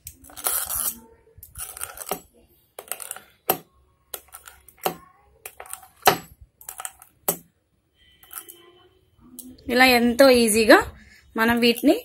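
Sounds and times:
pastry wheel clicking on board: 1.6s - 2.2s.

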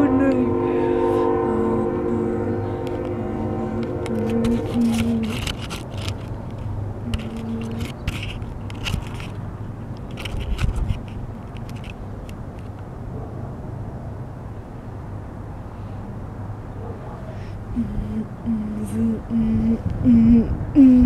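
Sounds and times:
low horn-like tone: 0.0s - 5.8s, 7.0s - 7.9s
scraping and clicking on camera: 4.0s - 12.8s.

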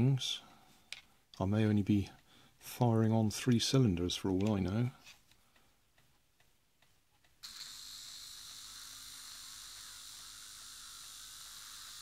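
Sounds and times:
small motor whirring high-pitched: 7.4s - 12.0s.

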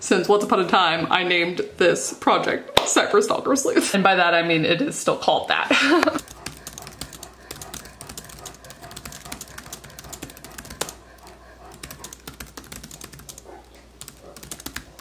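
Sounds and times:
fast typing on laptop keyboard: 6.0s - 15.0s.

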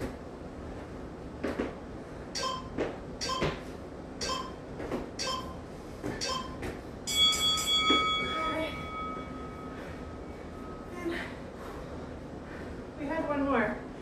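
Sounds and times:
feet thudding on rubber flooring: 0.8s - 1.8s, 6.0s - 7.0s
shoe squeak: 2.4s - 3.6s, 5.2s - 6.7s.

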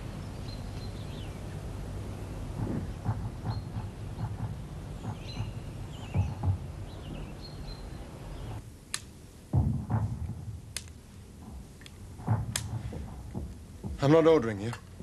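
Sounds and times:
birds chirping: 0.0s - 8.6s
low outdoor rumble: 0.0s - 15.0s
dull knocks: 2.5s - 7.9s, 9.5s - 10.6s, 11.4s - 14.4s.

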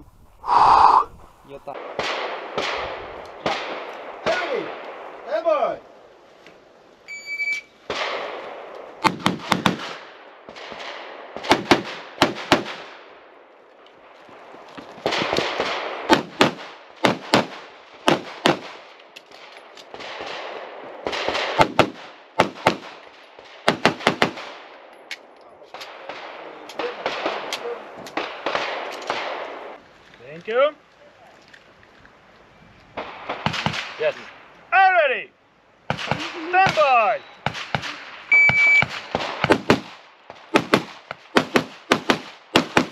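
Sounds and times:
pistol shots in pairs: 1.8s - 5.1s, 7.9s - 13.1s, 15.0s - 18.8s, 19.8s - 24.9s, 25.7s - 29.8s, 35.9s - 42.9s
shot timer beep: 38.3s - 38.9s.

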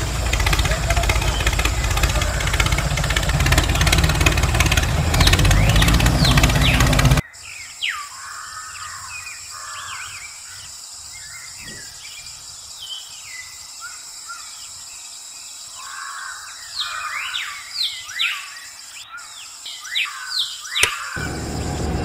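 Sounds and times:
small birds chirping: 0.0s - 22.0s
steady high-pitched hum: 21.2s - 22.0s.

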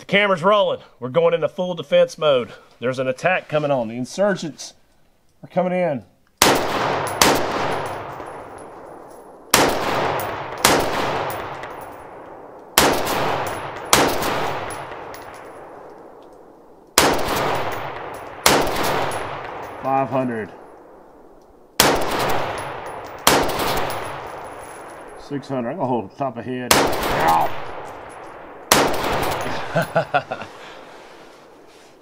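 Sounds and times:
rifle shots echoing: 6.4s - 31.6s.

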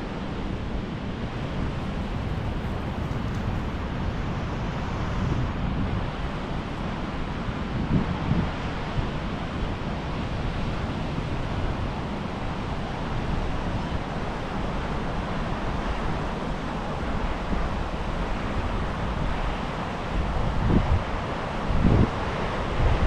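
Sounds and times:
wind rumbling on microphone: 0.6s - 23.0s
sea surf washing onto beach: 1.4s - 5.0s.

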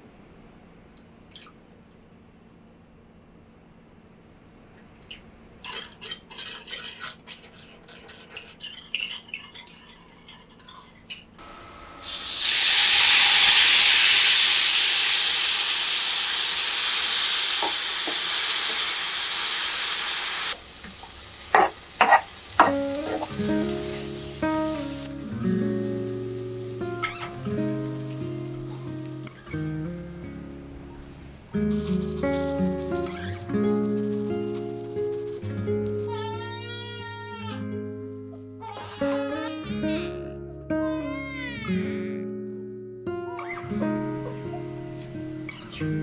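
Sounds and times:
vegetables frying in a pan: 11.4s - 29.9s
sauce sizzling loudly in hot pan: 11.4s - 30.7s
music: 22.6s - 46.0s.

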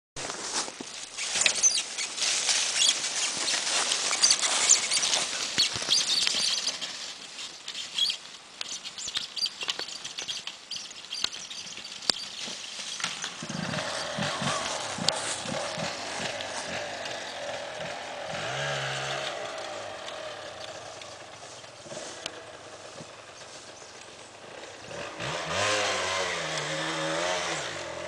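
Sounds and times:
dry leaves crackling and rustling: 0.2s - 28.0s.

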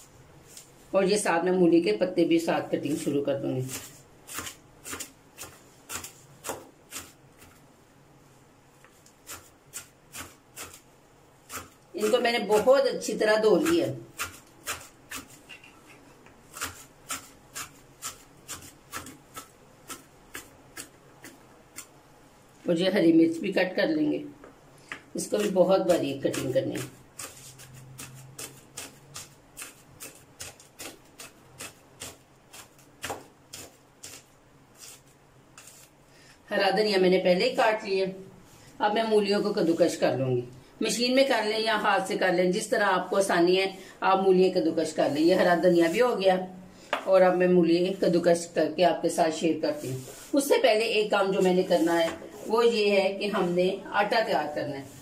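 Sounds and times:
knife chopping on cutting board: 3.7s - 7.6s, 9.2s - 10.8s, 11.5s - 11.8s, 13.5s - 15.6s, 16.5s - 21.9s, 25.4s - 34.2s.

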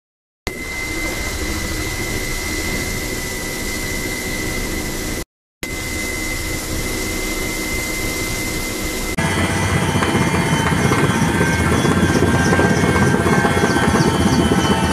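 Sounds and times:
helicopter engine and rotor noise: 0.5s - 14.9s
high whine: 0.5s - 14.9s.

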